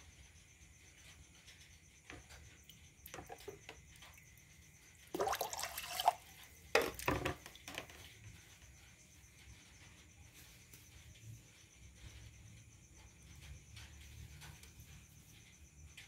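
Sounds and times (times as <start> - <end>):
water trickling and dripping: 1.5 - 8.4
water pouring over rice: 5.1 - 7.0.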